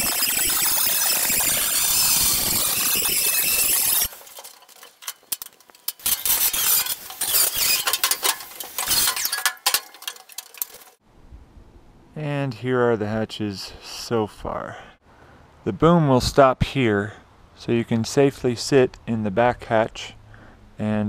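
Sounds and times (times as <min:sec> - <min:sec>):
angle grinder cutting steel: 0:00.0 - 0:11.0
metallic clinks and knocks: 0:02.3 - 0:11.0.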